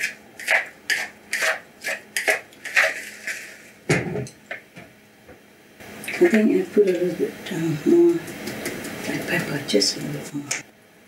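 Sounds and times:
utensil stirring in bowl: 0.0s - 3.8s.

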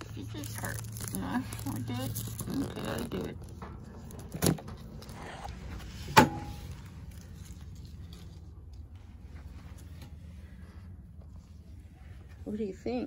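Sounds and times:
packaging rustling: 0.0s - 5.9s.

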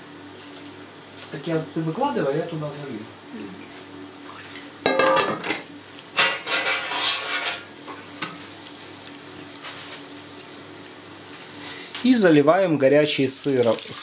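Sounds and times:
steel bowl clattering on table: 4.9s - 5.6s
gloved hands handling cheese: 8.4s - 11.9s.

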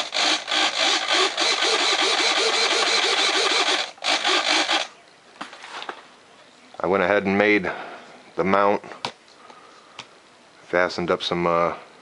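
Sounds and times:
servos whirring: 0.0s - 5.0s.

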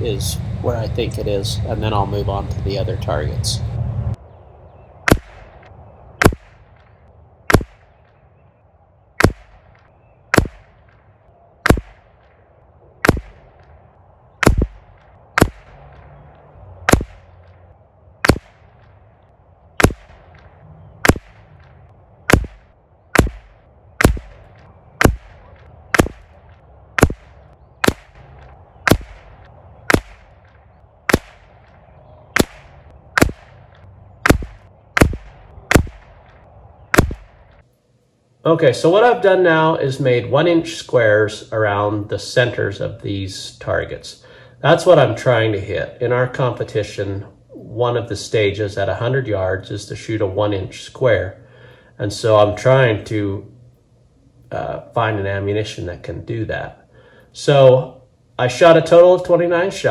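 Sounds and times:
rifle shots: 5.1s - 5.6s, 6.2s - 8.1s, 9.2s - 12.4s, 13.0s - 13.8s, 14.4s - 16.2s, 16.9s - 17.6s, 18.2s - 19.0s, 19.8s - 37.6s.

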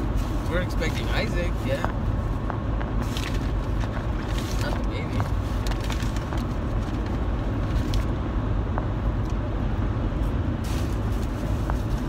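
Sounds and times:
road and engine rumble in car: 0.0s - 12.0s.

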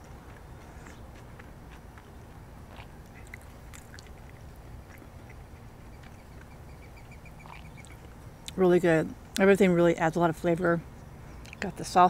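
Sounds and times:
wet chewing: 0.0s - 8.6s
low steady rumble: 0.0s - 12.0s.

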